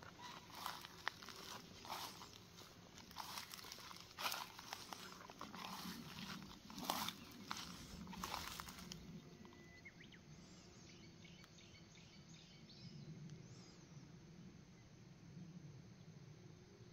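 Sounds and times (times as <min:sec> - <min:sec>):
rustling and crunching: 0:00.0 - 0:09.5
faint bird chirps: 0:07.1 - 0:14.2.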